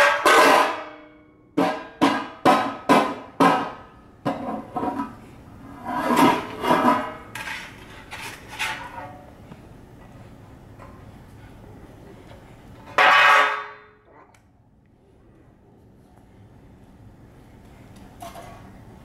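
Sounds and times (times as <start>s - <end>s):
metal pans clanging on tile floor: 0.0s - 1.0s, 6.0s - 9.2s, 12.9s - 13.8s.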